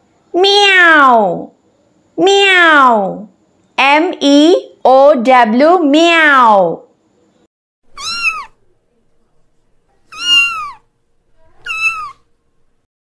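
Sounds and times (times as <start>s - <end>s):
cat meowing: 8.0s - 8.6s, 10.1s - 12.2s.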